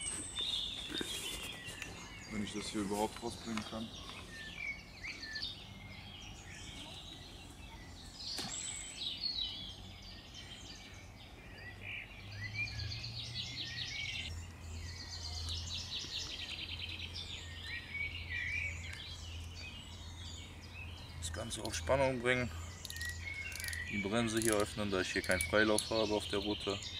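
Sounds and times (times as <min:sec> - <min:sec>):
songbirds singing and chirping: 0:00.0 - 0:26.9
sharp click: 0:22.8 - 0:25.9.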